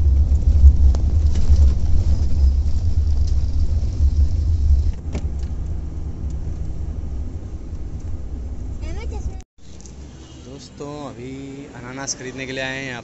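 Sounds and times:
car interior rumble: 0.0s - 13.0s.

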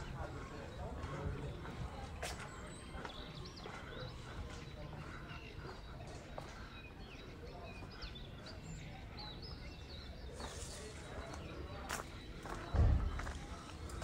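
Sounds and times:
small birds chirping: 0.0s - 14.0s
low thump: 12.7s - 13.3s.

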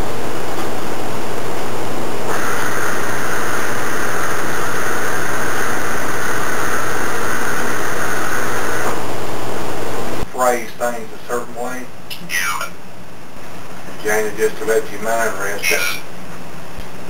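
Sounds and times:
loud harsh noise: 0.0s - 10.3s
higher rasping noise: 2.2s - 10.2s.

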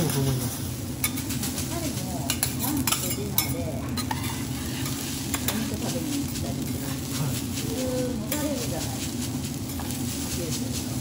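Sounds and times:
rice sizzling: 0.0s - 11.0s
spatula clinking on steel: 1.0s - 1.4s, 2.3s - 7.0s
metal spatulas scraping a griddle: 2.3s - 11.0s.

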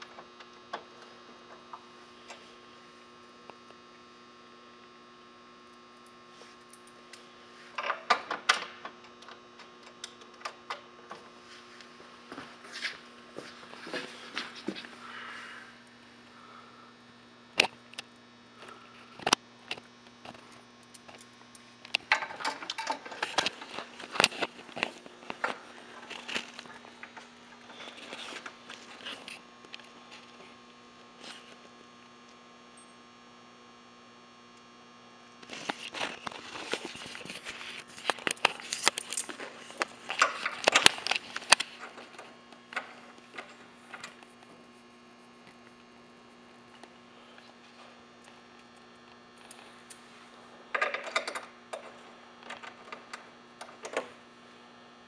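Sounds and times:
mains hum: 0.0s - 55.0s
metal bolts and washers clinking: 22.0s - 24.4s.

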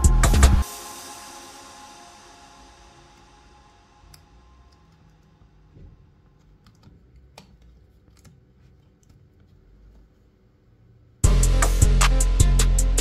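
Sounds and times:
fingers handling cable: 6.2s - 10.3s.

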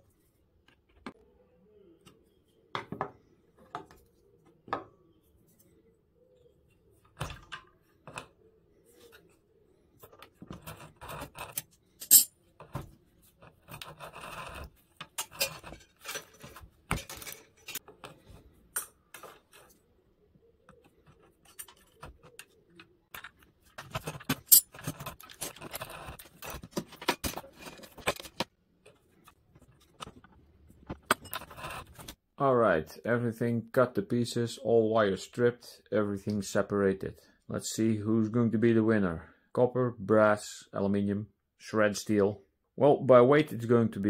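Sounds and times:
pliers and wire clicking and scraping: 10.0s - 19.8s, 20.6s - 32.2s.

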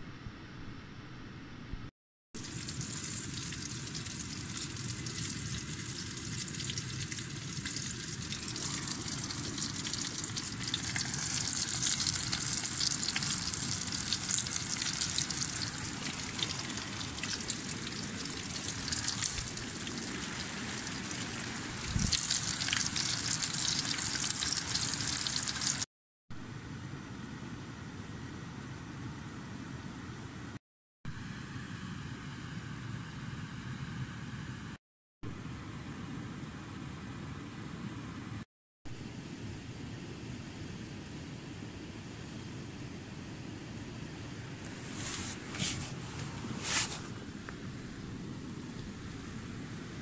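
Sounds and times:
rain pattering on tent fabric: 2.4s - 25.8s.

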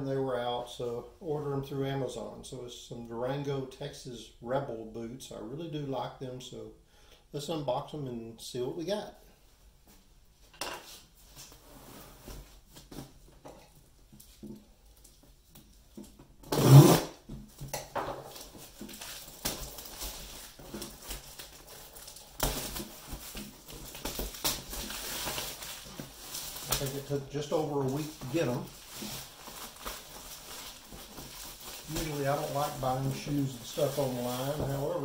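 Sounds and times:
plastic mailer crinkling and tearing: 18.3s - 35.0s.

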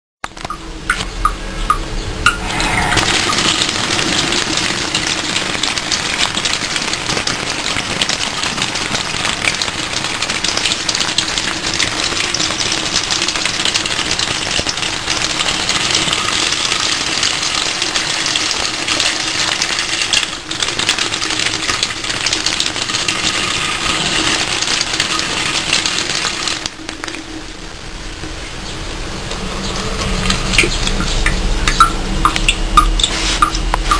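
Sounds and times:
water pouring into a steel sink: 2.3s - 28.1s.

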